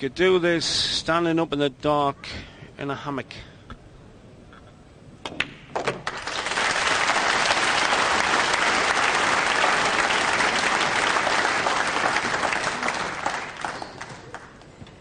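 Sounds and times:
audience applauding: 6.0 - 14.7.

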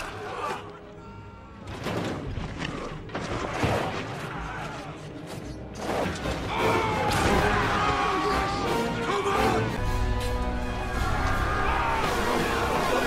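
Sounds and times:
orchestral score: 0.0 - 13.0.

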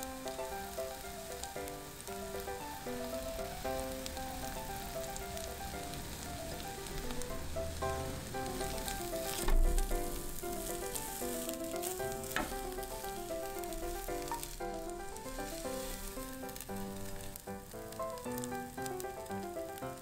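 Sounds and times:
background music melody: 0.0 - 20.0
egg sizzling in a pan: 0.0 - 20.0
utensils knocking against pan: 12.2 - 12.8.

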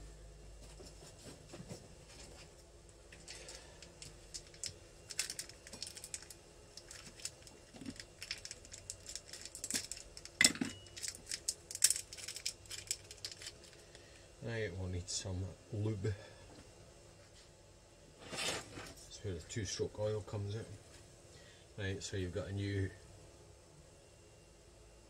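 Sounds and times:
small metal parts clinking: 3.2 - 13.9.

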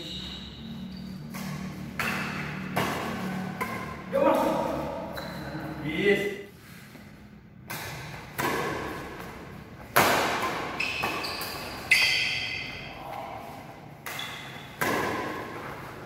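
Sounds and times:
shoe squeaks: 0.0 - 1.4, 5.1 - 5.6, 10.8 - 12.9, 14.1 - 14.8
racket hitting shuttlecock: 1.3 - 4.1, 7.6 - 12.8, 14.0 - 16.0.

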